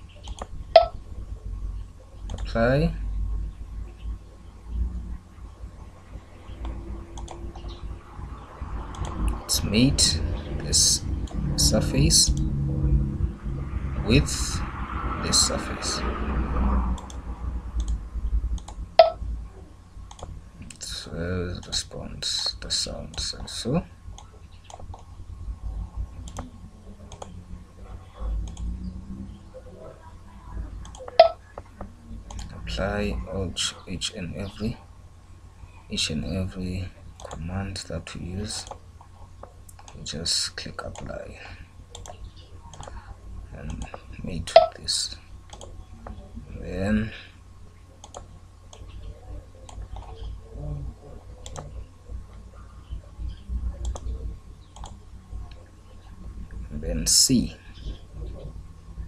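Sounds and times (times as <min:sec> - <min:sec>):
low steady hum: 0:00.0 - 0:59.0
computer mouse clicking: 0:00.2 - 0:00.9, 0:02.3 - 0:02.5, 0:06.5 - 0:07.8, 0:08.9 - 0:09.4, 0:16.9 - 0:17.2, 0:17.8 - 0:18.0, 0:18.6 - 0:19.1, 0:20.1 - 0:20.8, 0:24.1 - 0:25.1, 0:26.2 - 0:26.5, 0:27.1 - 0:27.4, 0:28.3 - 0:28.7, 0:30.8 - 0:32.6, 0:37.2 - 0:37.4, 0:41.9 - 0:43.1, 0:45.5 - 0:46.2, 0:48.0 - 0:49.0, 0:49.6 - 0:50.3, 0:51.4 - 0:51.8, 0:53.3 - 0:55.6.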